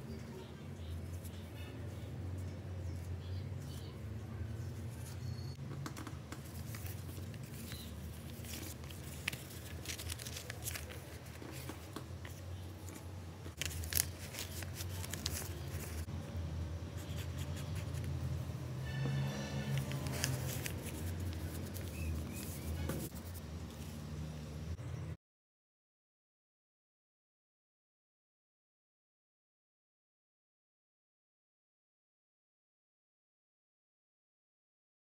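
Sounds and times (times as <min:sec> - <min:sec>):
paper bag rustling and crinkling: 0:06.4 - 0:16.1, 0:19.6 - 0:23.9.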